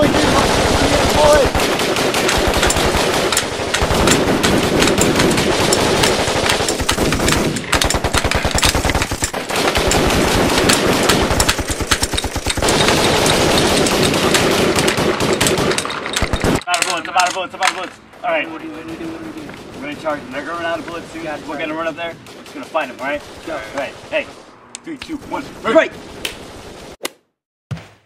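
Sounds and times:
automatic gunfire bursts: 0:00.0 - 0:16.6.

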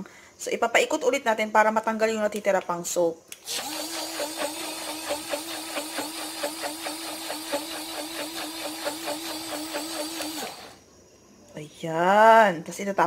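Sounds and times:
blender pulsing whir: 0:03.4 - 0:10.8.

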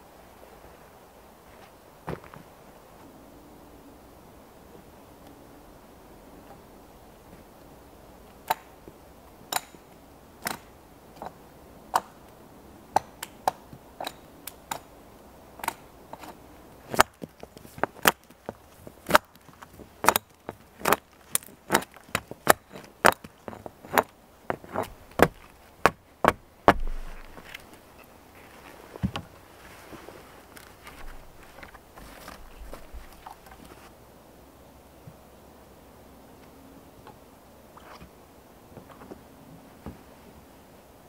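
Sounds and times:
hatchet knocking on wooden pole: 0:26.3 - 0:27.3.

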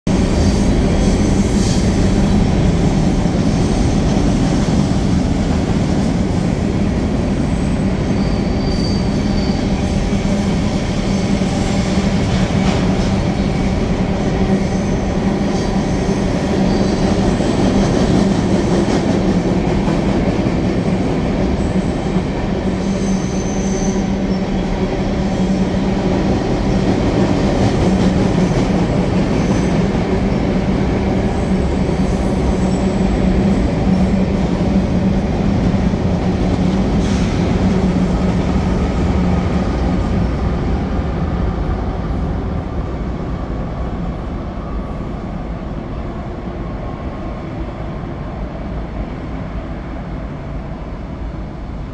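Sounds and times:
train wheels rumbling on rail: 0:00.1 - 0:51.9
wheel squeals: 0:08.1 - 0:09.8.

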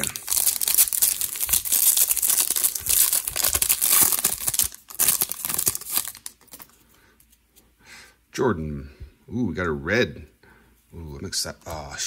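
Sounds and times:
foil wrapper crinkling: 0:00.0 - 0:06.8.

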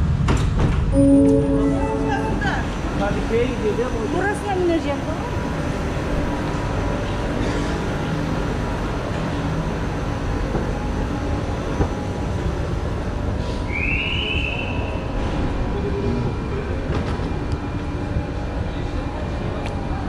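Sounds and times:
short high tone: 0:00.9 - 0:03.3
station rumbling hum: 0:00.9 - 0:07.4.

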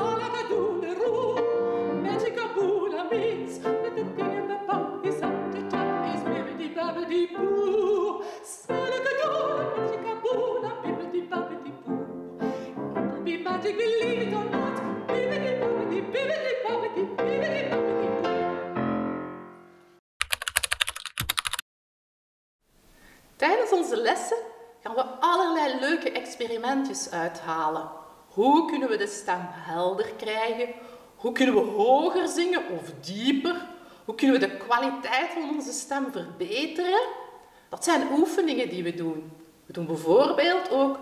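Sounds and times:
woman singing operatically: 0:00.0 - 0:12.1, 0:13.0 - 0:18.3, 0:28.4 - 0:37.2
piano: 0:00.0 - 0:20.0.

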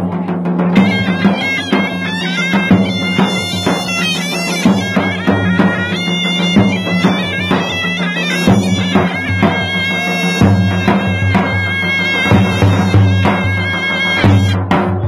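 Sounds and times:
bass drum beating: 0:00.0 - 0:15.0
shrill reed pipe melody: 0:00.8 - 0:14.8.

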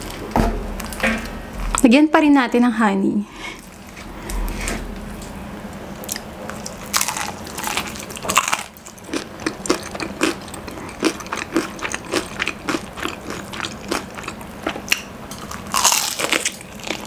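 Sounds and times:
chewing: 0:06.0 - 0:17.0.

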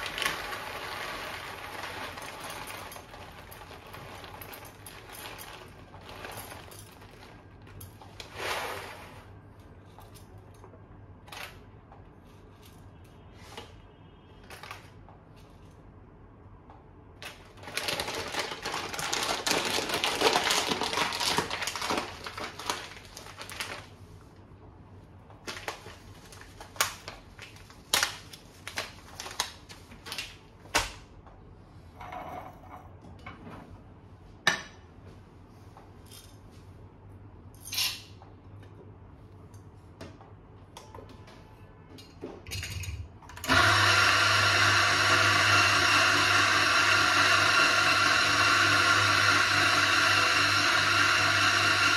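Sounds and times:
coffee beans pouring into metal cup: 0:00.0 - 0:06.8.

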